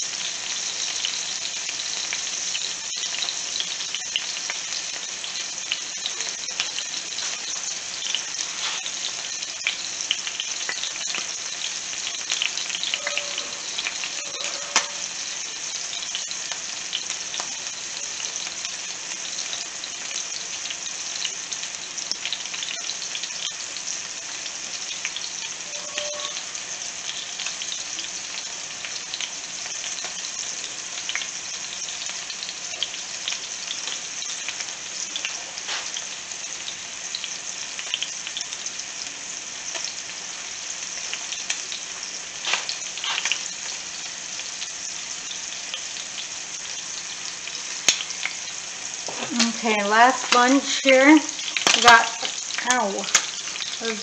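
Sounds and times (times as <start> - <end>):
chicken sizzling in oil: 0.0 - 54.0
oil spattering crackles: 41.1 - 54.0.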